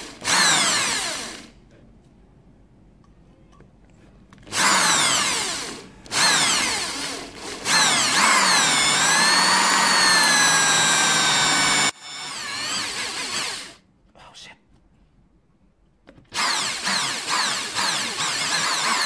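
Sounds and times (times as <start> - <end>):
power drill whining: 0.0 - 1.5, 4.5 - 13.8, 16.3 - 19.0.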